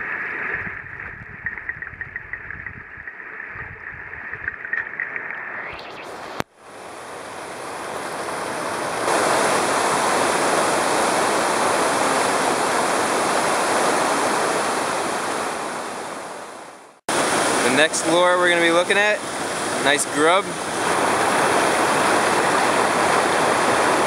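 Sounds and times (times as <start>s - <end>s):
underwater gurgling: 0.0s - 6.4s
steady rushing hiss: 4.2s - 24.0s.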